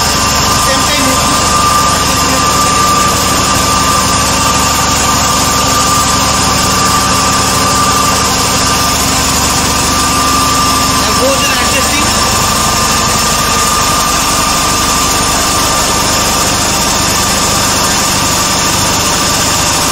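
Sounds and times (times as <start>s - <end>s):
machine hum with high whine: 0.0s - 19.9s.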